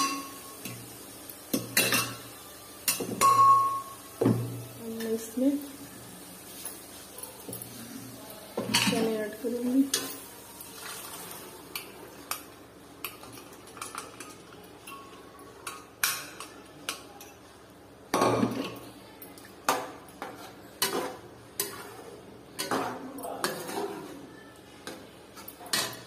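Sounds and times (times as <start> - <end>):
metal spatula scraping pan: 20.3 - 24.2.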